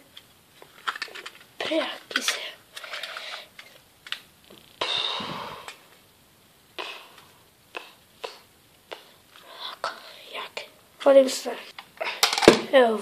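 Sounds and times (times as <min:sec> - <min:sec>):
breathy exhale: 0:04.8 - 0:05.8.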